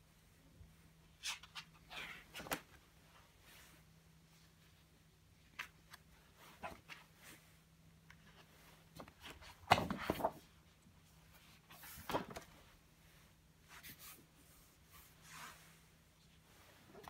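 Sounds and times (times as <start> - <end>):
faint steady hum: 0.0 - 17.0
pages flapping and rustling: 1.3 - 2.8, 8.2 - 10.6, 11.3 - 12.7.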